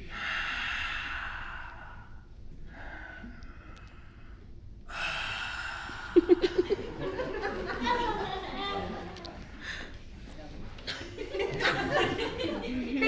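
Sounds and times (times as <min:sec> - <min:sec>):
man gasping and exhaling: 0:02.7 - 0:06.2.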